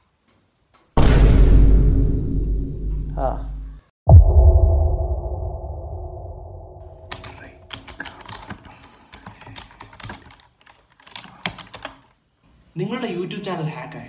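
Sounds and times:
deep low hit: 1.0s - 3.2s, 4.1s - 7.3s
computer keyboard typing: 7.0s - 12.2s.

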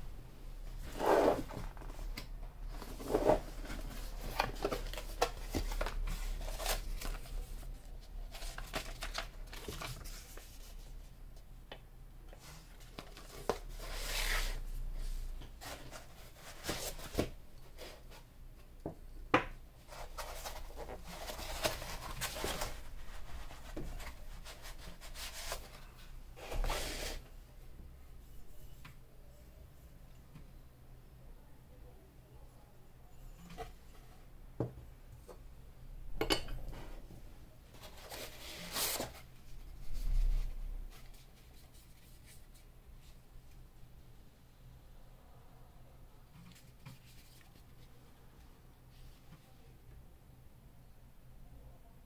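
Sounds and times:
cardboard and paper rustling: 0.8s - 10.9s, 15.6s - 18.2s, 19.8s - 27.2s, 37.7s - 42.6s.

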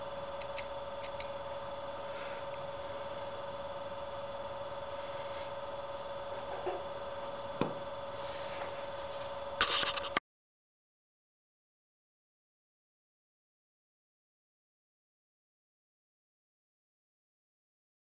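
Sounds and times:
steady background hum: 0.0s - 10.2s.

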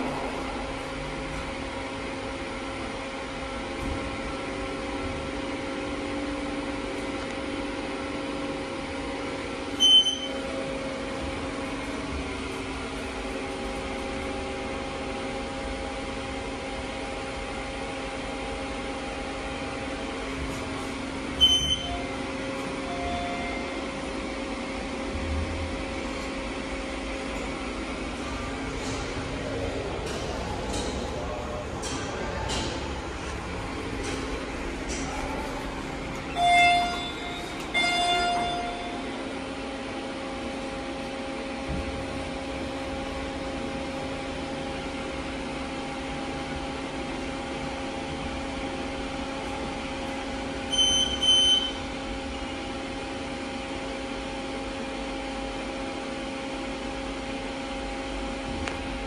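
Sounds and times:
elevator machinery hum: 0.0s - 59.0s
short high electronic beep: 9.8s - 10.4s, 36.3s - 39.0s, 50.7s - 51.8s.

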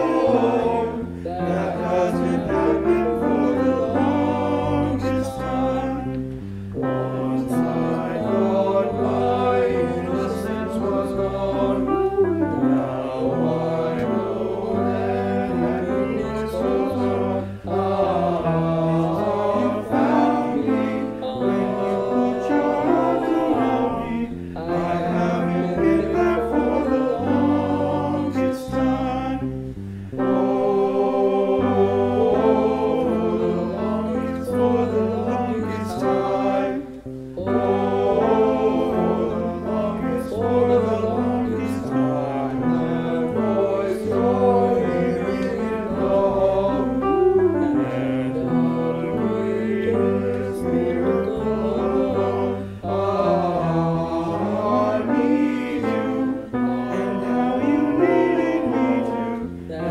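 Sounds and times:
male choir singing a cappella: 0.0s - 59.9s.

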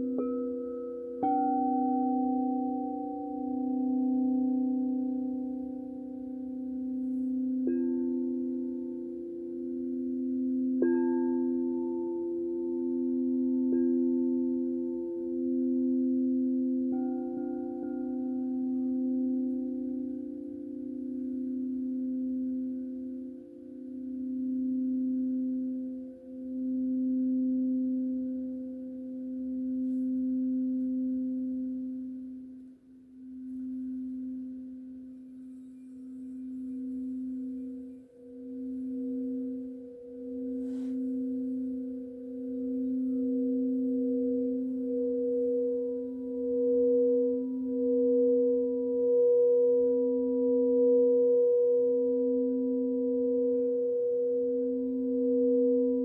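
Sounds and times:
faint high bowl tone: 0.0s - 56.0s
low singing bowl ringing: 0.0s - 56.0s
higher singing bowl tone: 33.2s - 56.0s.

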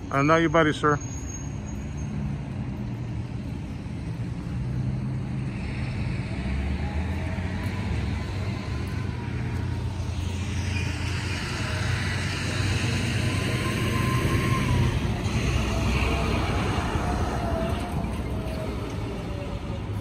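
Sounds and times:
cars passing: 0.0s - 20.0s.

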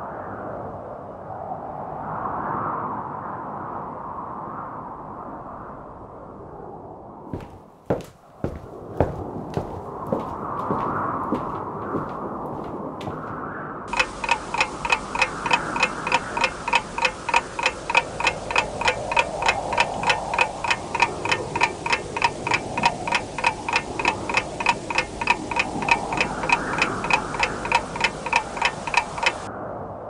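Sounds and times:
clock ticking: 7.4s - 13.3s, 13.9s - 29.5s
steady rushing noise: 13.9s - 29.5s.

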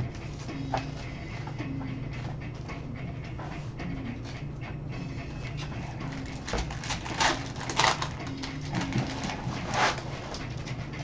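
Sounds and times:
foil pack crinkling and tearing: 6.1s - 10.0s.

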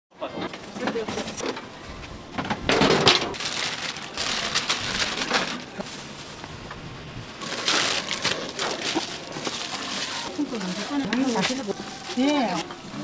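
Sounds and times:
food sizzling and crackling: 7.4s - 13.0s.

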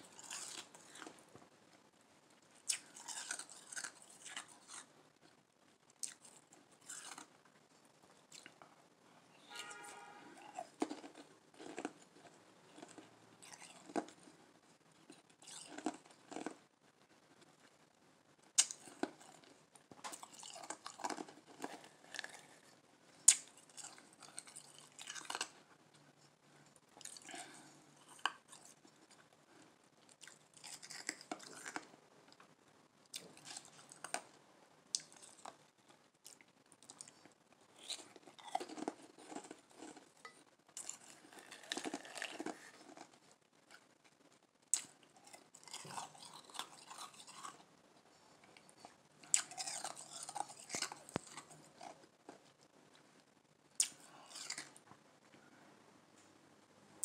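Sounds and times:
ice crunched and chewed: 0.0s - 1.4s, 2.6s - 4.9s, 5.9s - 7.3s, 9.5s - 14.4s, 15.0s - 16.6s, 18.6s - 26.0s, 26.8s - 29.3s, 30.0s - 32.5s, 33.1s - 34.3s, 34.9s - 35.6s, 36.2s - 47.7s, 48.3s - 52.7s, 53.8s - 54.9s.

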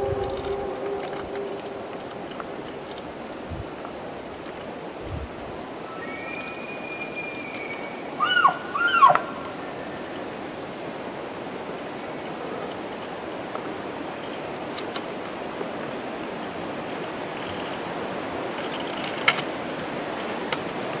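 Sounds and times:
faint clicks: 0.0s - 4.7s, 7.4s - 7.9s, 12.2s - 15.3s, 16.8s - 21.0s
rushing outdoor background noise: 0.0s - 21.0s.

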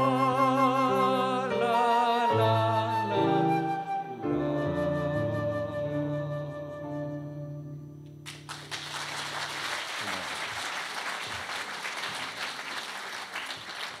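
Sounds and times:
flute note: 0.0s - 8.0s
audience applause: 8.3s - 14.0s.

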